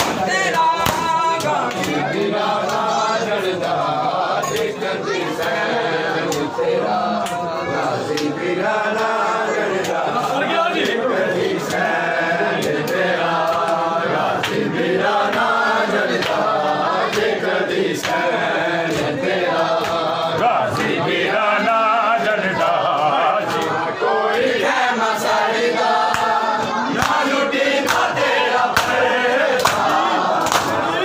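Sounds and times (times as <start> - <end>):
hands slapping chests: 0.0 - 2.9, 8.1 - 8.4, 16.1 - 17.3, 18.0 - 18.3, 26.0 - 30.8
men chanting a lament: 0.0 - 31.0.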